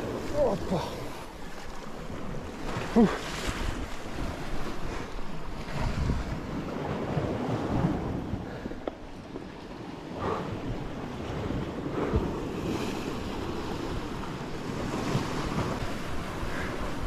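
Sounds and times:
waves breaking over rocks: 0:00.0 - 0:17.0
wind buffeting microphone: 0:00.0 - 0:17.0.

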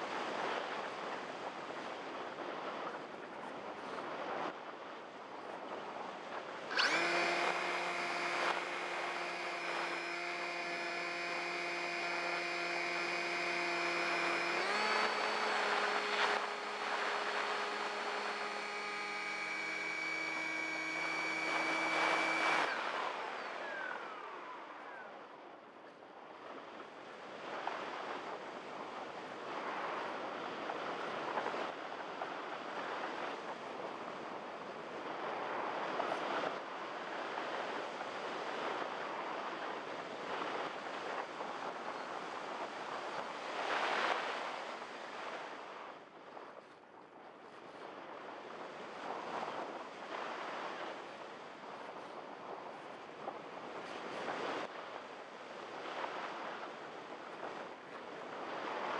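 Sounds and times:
model plane motor whine: 0:06.7 - 0:25.2.

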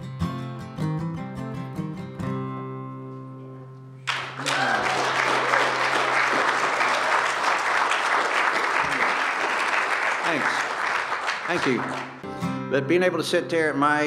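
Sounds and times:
acoustic guitar: 0:00.0 - 0:04.4, 0:11.4 - 0:14.0
audience applause: 0:04.1 - 0:12.2.

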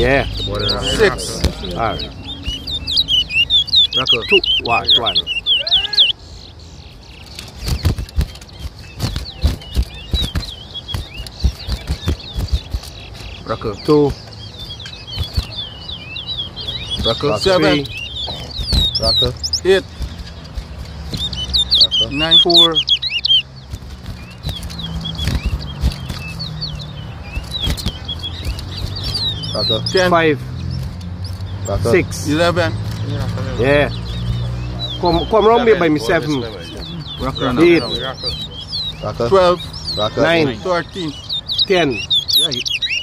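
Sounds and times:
bird singing whistled notes: 0:00.0 - 0:43.0
wing flutters: 0:07.1 - 0:15.9, 0:16.6 - 0:39.9
sharp clicks: 0:07.1 - 0:31.8, 0:32.4 - 0:35.0
low thumps: 0:23.4 - 0:38.4.

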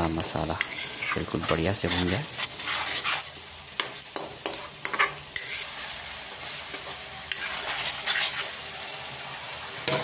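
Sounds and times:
steel spoon scraping a pan: 0:00.0 - 0:05.9, 0:06.5 - 0:08.6
paste sizzling in a pan: 0:00.0 - 0:10.0.

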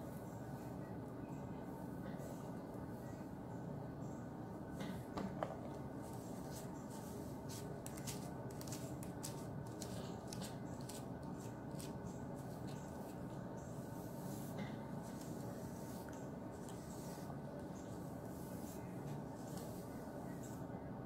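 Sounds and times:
low background hum: 0:00.0 - 0:21.0
brush swishing through wet hair: 0:11.8 - 0:20.6.

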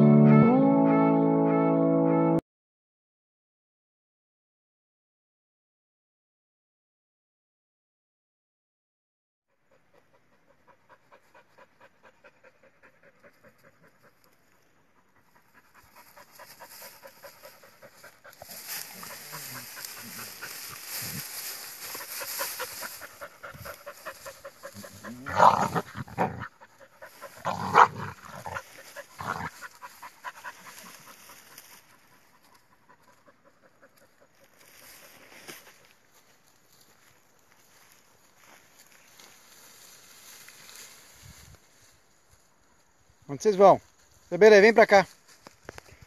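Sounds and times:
dog panting rapidly: 0:09.7 - 0:14.3, 0:14.9 - 0:20.9, 0:21.9 - 0:34.4.

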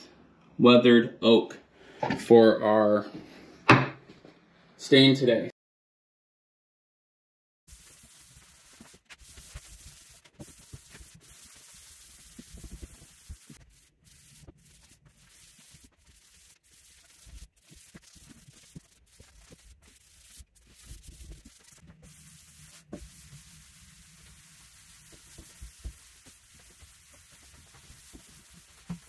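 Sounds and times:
rag rubbing on wood: 0:07.7 - 0:29.0.

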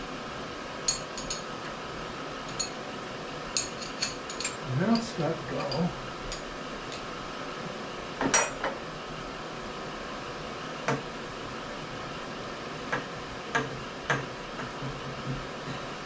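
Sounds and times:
metal tooling clinks and knocks: 0:03.6 - 0:05.9.

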